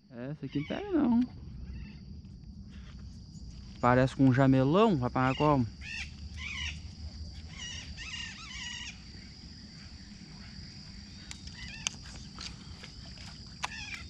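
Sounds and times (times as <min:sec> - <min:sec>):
high-pitched insect drone: 0:00.0 - 0:14.0
rapid repeated animal calls: 0:00.4 - 0:02.1, 0:05.2 - 0:14.0
sharp clicks: 0:11.2 - 0:12.6, 0:13.6 - 0:14.0.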